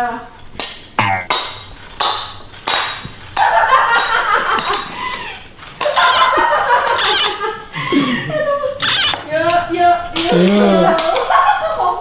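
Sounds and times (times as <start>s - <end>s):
squealing and laughing voices: 5.0s - 9.3s
ladles clinking steel bowls: 5.8s - 7.5s.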